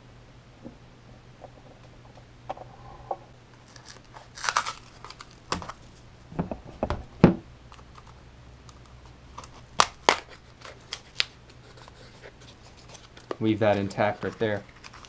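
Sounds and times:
cardboard cracking: 3.6s - 6.0s, 9.3s - 15.0s.

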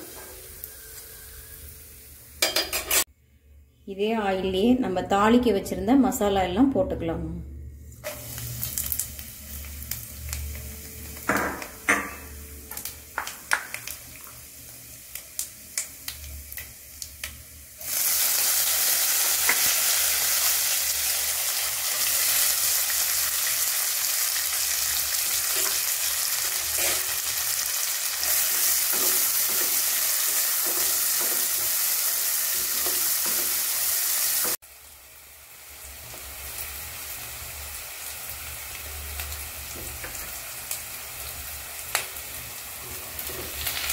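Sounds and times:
onions sizzling in oil: 0.0s - 2.8s, 7.9s - 43.9s
spices crackling in hot oil: 7.9s - 11.9s, 12.6s - 43.9s.

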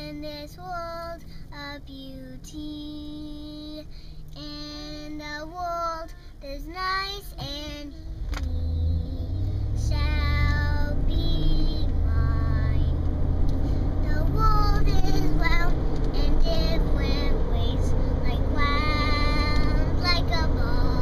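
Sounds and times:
girl singing: 0.0s - 13.0s, 14.0s - 21.0s
car driving rumble inside car: 0.0s - 21.0s.

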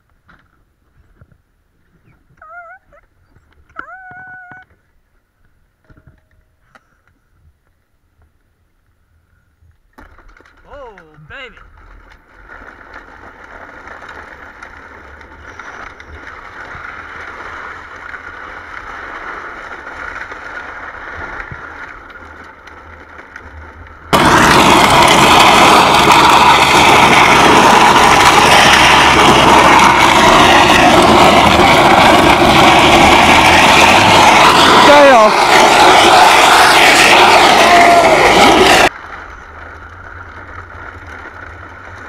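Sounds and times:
toy wheels rolling on asphalt: 0.2s - 42.0s
loud rushing noise: 24.1s - 39.3s.

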